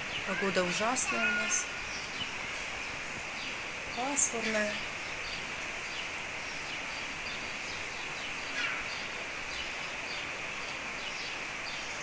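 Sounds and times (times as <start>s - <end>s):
outdoor background noise: 0.0s - 12.0s
faint bird chirps: 6.4s - 12.0s.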